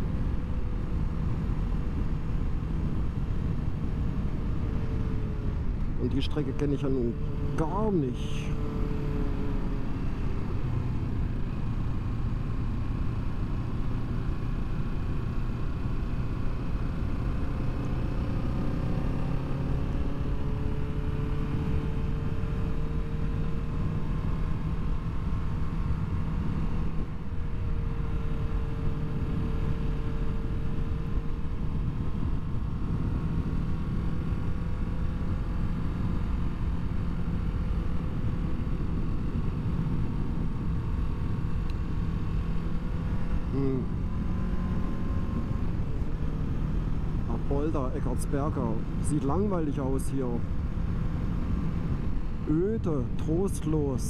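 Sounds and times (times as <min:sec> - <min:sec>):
wind and road noise: 0:00.0 - 0:54.0.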